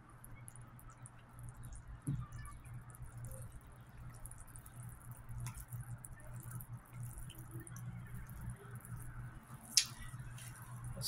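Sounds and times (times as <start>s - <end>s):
low steady hum: 0.0s - 11.0s
wet sloshing of stirred oil: 0.2s - 11.0s.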